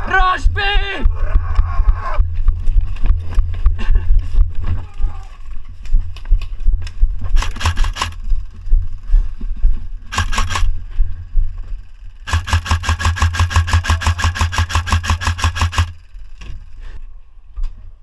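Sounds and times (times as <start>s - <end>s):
airsoft rifle automatic bursts: 7.4s - 8.3s, 10.1s - 10.8s, 12.2s - 16.4s.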